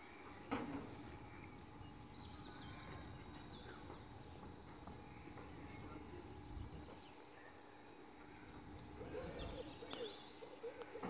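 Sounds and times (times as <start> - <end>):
faint outdoor ambience: 0.0 - 11.0
lower wavering bird calls: 5.0 - 11.0.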